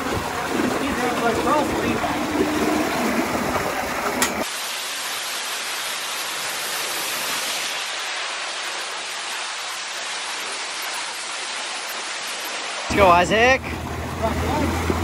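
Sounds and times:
wind rumble on microphone: 0.0s - 4.4s
water rushing down slide: 0.0s - 15.0s.

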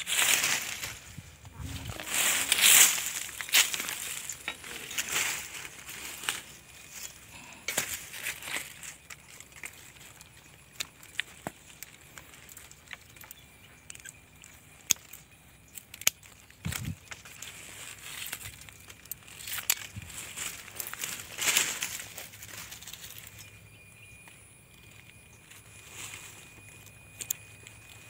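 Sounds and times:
rustling dry leaves and twigs: 0.0s - 28.0s
pruning shears clicking: 2.0s - 22.2s.

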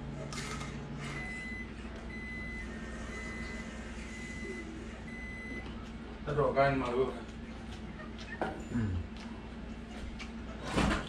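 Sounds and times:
electronic alarm beeping: 1.1s - 5.6s.

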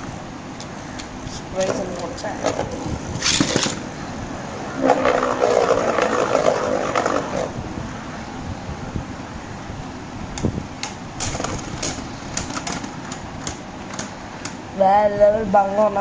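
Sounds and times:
spinning tops whirring and scraping: 1.6s - 3.9s, 4.8s - 7.6s.

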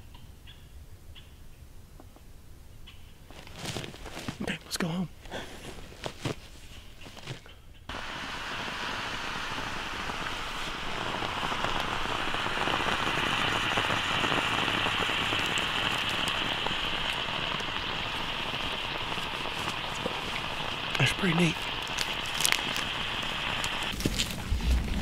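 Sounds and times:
rushing water hiss: 7.9s - 25.0s.

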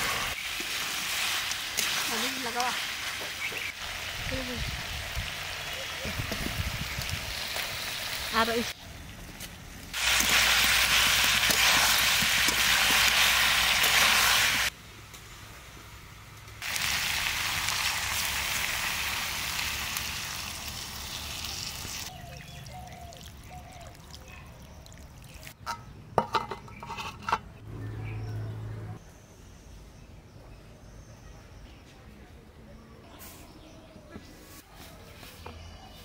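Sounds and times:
curry sizzling in a pan: 0.0s - 8.7s, 9.9s - 14.7s.

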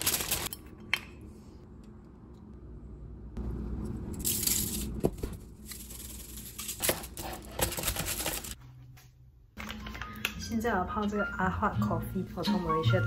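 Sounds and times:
aluminium foil crinkling: 0.0s - 0.5s.

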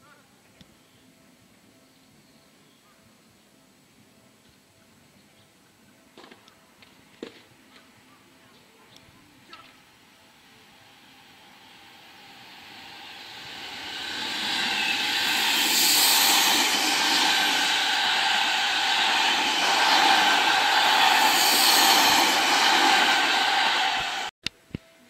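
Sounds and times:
electric train passing: 9.8s - 24.3s.

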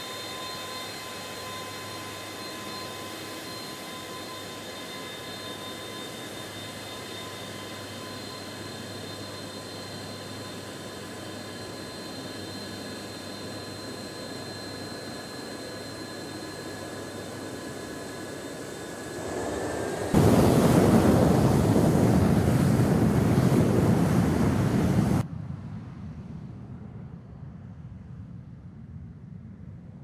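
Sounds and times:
jet engines whining: 0.0s - 25.2s
loud jet noise: 0.0s - 25.3s
faint low rumble: 19.2s - 30.0s.

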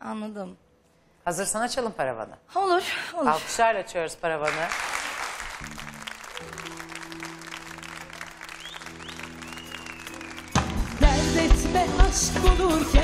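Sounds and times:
audience applauding: 4.5s - 11.6s
music with a beat: 10.1s - 13.0s.

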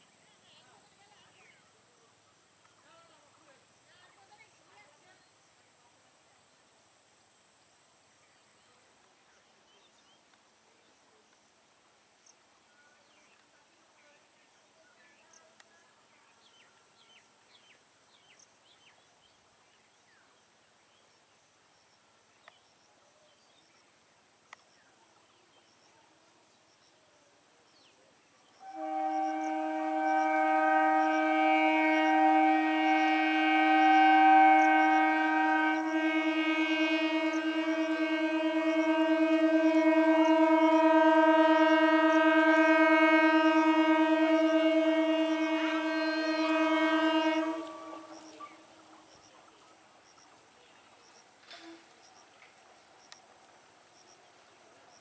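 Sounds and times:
train horn: 28.6s - 49.0s.

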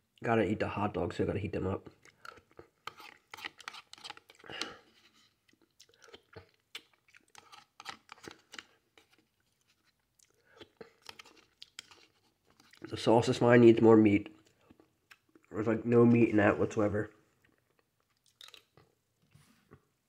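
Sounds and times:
chewing and mouth sounds: 1.9s - 13.0s, 14.3s - 15.6s, 17.3s - 19.0s
mouth clicks and smacks: 5.4s - 9.2s, 14.3s - 15.6s, 17.4s - 19.0s.

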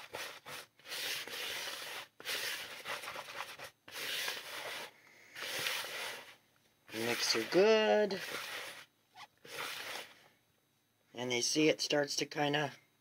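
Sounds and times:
gritty rubbing of powder in a bowl: 0.0s - 10.2s.

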